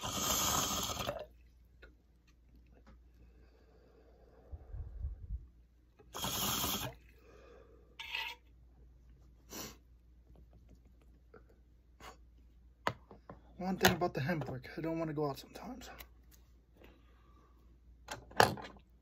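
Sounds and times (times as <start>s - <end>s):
low rumble: 4.4s - 5.7s
man sniffling: 9.4s - 9.9s.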